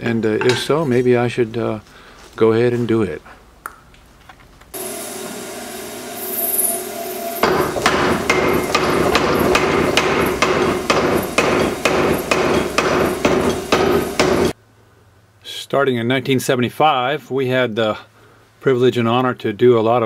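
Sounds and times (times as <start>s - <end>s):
power hammer humming: 4.8s - 14.6s
power hammer striking hot steel: 4.8s - 14.6s.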